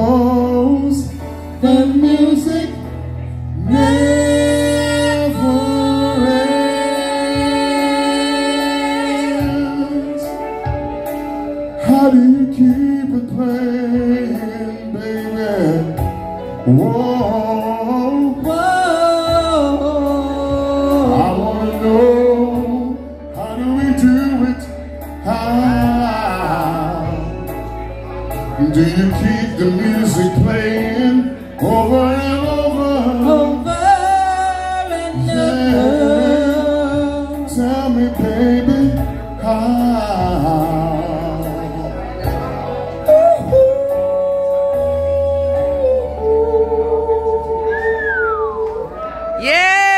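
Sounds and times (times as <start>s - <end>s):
backing music: 0.0s - 49.9s
low bass line: 0.0s - 49.9s
woman and man singing duet: 3.6s - 10.5s.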